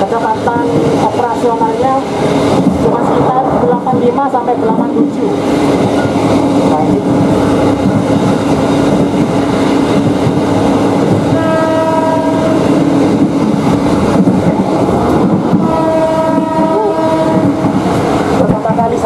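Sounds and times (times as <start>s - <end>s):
train wheels rumbling on rail: 0.0s - 19.0s
train horn blasts: 11.3s - 12.8s, 15.6s - 17.9s.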